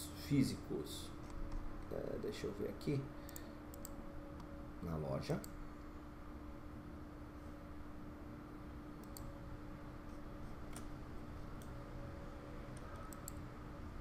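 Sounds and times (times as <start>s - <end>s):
steady low hum: 0.0s - 14.0s
computer mouse clicks: 3.3s - 4.5s, 9.0s - 9.3s, 12.7s - 13.5s.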